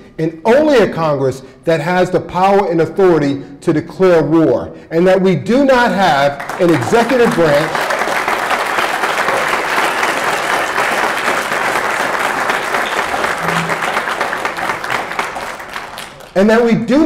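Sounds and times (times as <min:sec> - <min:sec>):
audience applauding: 0:06.4 - 0:16.4.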